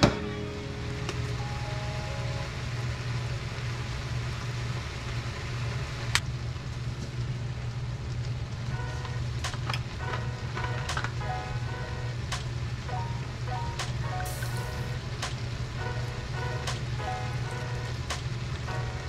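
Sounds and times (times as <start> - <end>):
background music: 0.0 - 3.1, 8.7 - 19.0
low hum: 0.0 - 19.0
vegetables sizzling in a skillet: 14.2 - 19.0.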